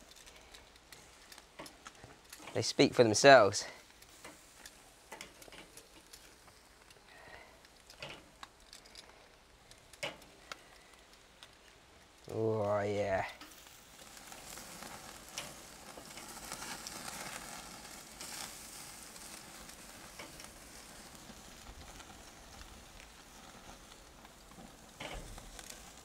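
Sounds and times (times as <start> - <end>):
prawns sizzling on grill: 0.0 - 26.0.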